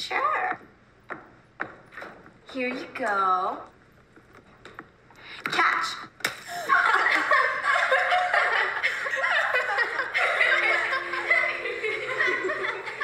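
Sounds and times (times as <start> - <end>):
girls laughing and snickering: 6.4 - 13.0.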